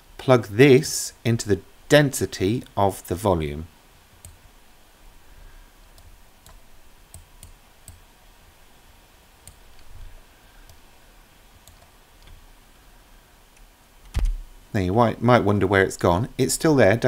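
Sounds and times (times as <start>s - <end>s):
low room hum: 0.0s - 17.0s
computer mouse clicking: 4.2s - 4.4s, 6.0s - 8.0s, 9.4s - 9.9s, 11.6s - 12.4s.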